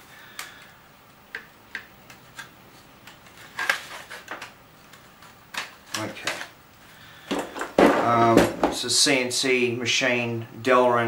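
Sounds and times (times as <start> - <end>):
knocking and rustling: 7.2 - 8.9.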